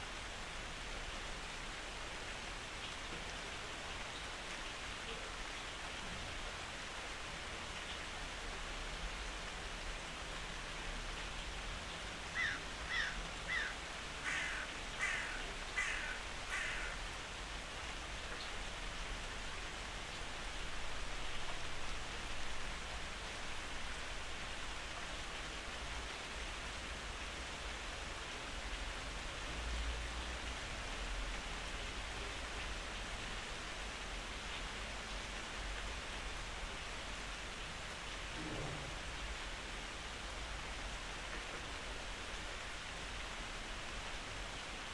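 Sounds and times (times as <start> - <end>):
short animal calls: 12.4 - 17.0.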